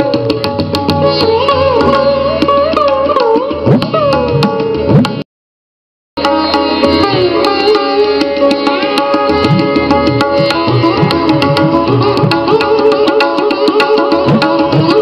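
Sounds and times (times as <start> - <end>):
plucked strings: 0.0 - 5.2, 6.2 - 15.0
hand drumming: 6.2 - 15.0.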